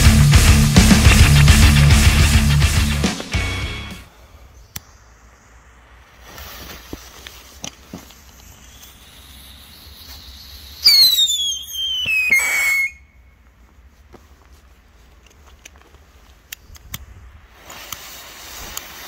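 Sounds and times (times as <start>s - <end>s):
fuse hissing and crackling: 0.0s - 19.0s
firework whistle falling: 8.5s - 13.2s.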